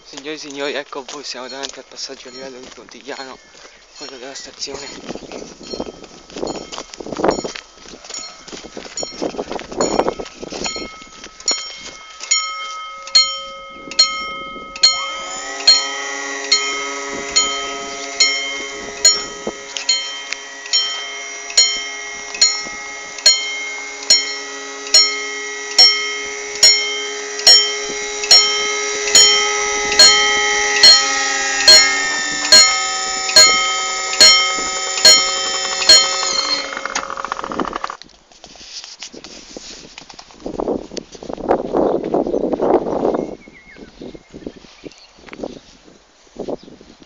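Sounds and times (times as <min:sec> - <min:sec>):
level crossing bells ringing: 0:01.4 - 0:03.3, 0:09.9 - 0:38.0.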